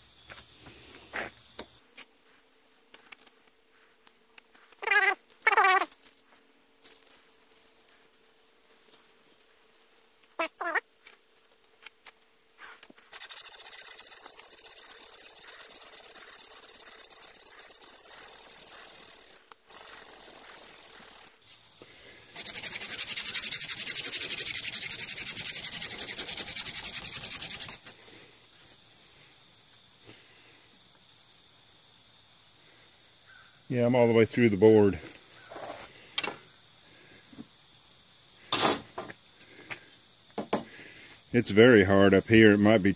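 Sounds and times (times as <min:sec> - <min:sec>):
wooden spindle grinding on fireboard: 0:13.1 - 0:20.6.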